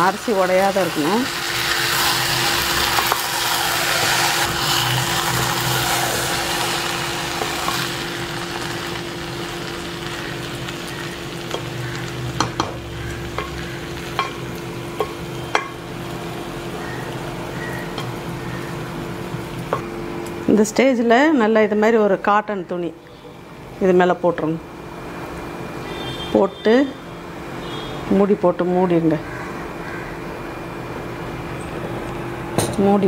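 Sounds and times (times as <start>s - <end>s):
spatula scraping sizzling rice: 0.8s - 15.8s
spatula tapping metal pot: 12.4s - 14.4s, 15.0s - 15.8s.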